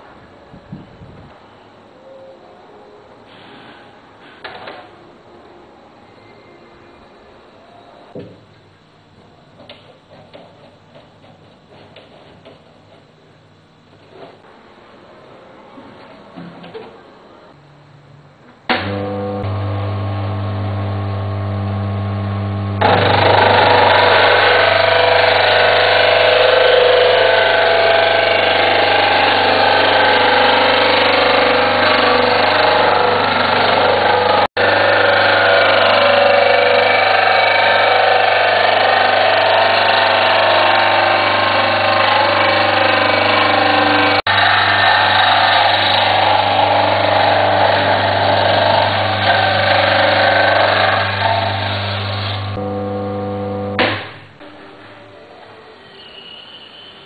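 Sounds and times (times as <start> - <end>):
motor hum: 18.7 - 54.5.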